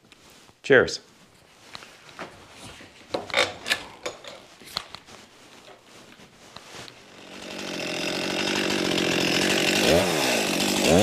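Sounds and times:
handling items on wooden workbench: 1.3s - 7.0s
chainsaw running: 7.0s - 11.0s.

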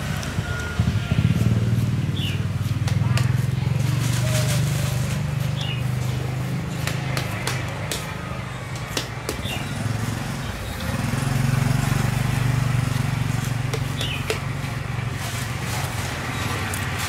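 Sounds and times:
motorbike engine droning: 0.0s - 17.0s
cleaver cutting pineapple clicks: 6.8s - 9.6s.

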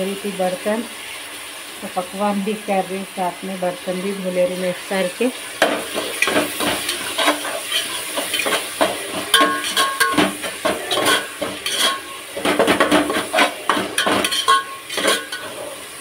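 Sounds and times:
food sizzling in a pan: 0.0s - 16.0s
pots and utensils clattering: 5.6s - 16.0s.

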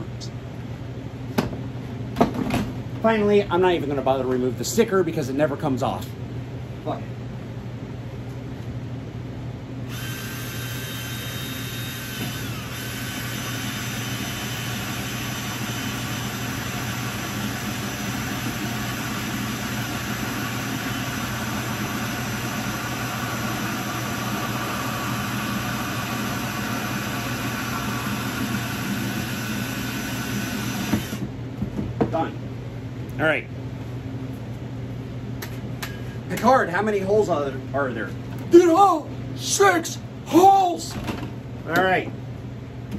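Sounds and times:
cordless drill with hole saw: 9.9s - 31.3s.

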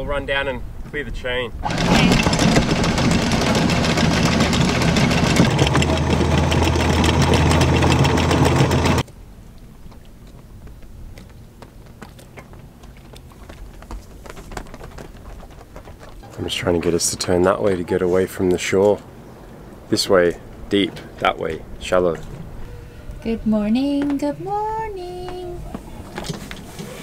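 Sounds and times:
faint rush of wind: 0.0s - 5.8s, 12.6s - 27.0s
anchor windlass motor hum: 1.6s - 9.0s, 22.2s - 27.0s
water rushing: 1.6s - 9.0s.

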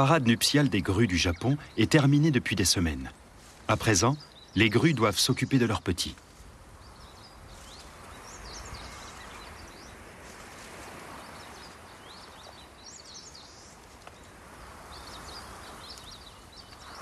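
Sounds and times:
marsh ambience hiss: 0.0s - 17.0s
small birds chirping: 0.0s - 17.0s.

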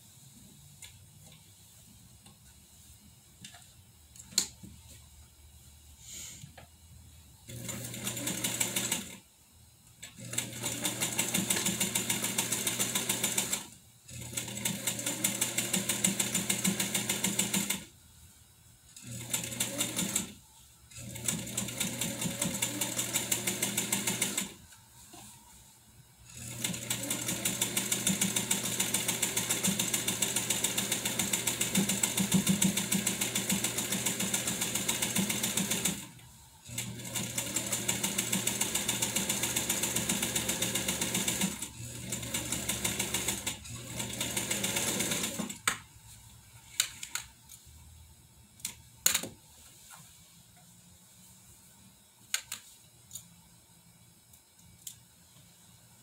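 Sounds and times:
sewing machine running fast: 7.5s - 9.2s, 10.2s - 17.8s, 19.1s - 20.3s, 21.0s - 24.6s, 26.4s - 36.1s, 36.8s - 45.5s.

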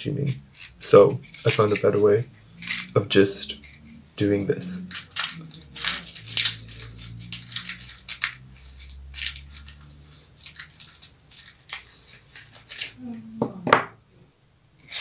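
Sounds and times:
match heads scraped and crushed: 0.2s - 4.1s, 4.7s - 13.0s.

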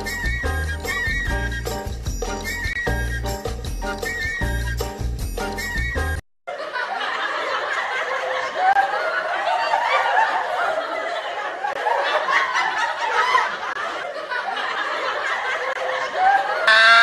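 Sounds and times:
group of people laughing: 6.5s - 17.0s.

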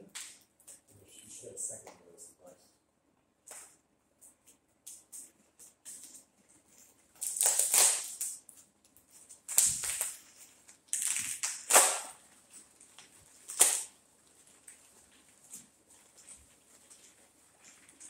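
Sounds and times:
packing material rustling: 5.2s - 18.0s.

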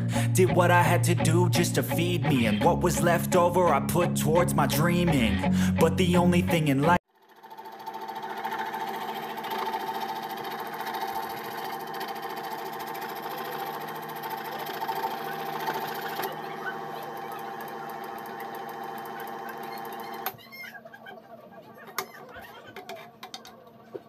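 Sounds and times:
scroll saw cutting plywood: 7.4s - 20.7s.

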